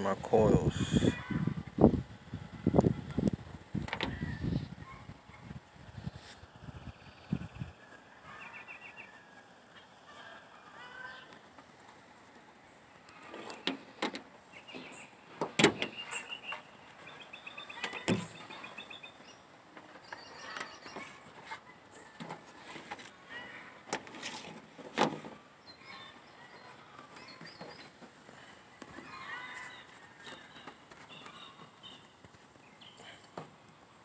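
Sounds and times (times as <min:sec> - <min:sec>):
birds chirping: 0:12.6 - 0:22.2, 0:25.4 - 0:33.5.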